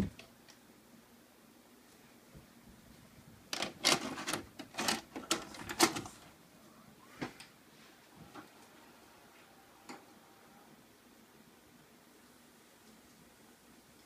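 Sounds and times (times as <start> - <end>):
tape loading clatters and clunks: 3.5 - 6.3.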